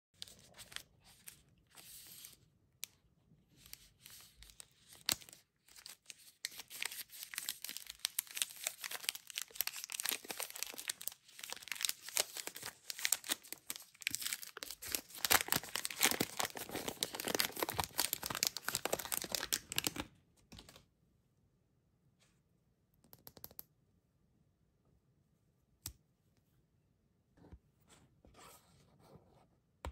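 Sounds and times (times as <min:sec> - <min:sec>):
wrapper crinkling as torn open: 0:04.9 - 0:20.0.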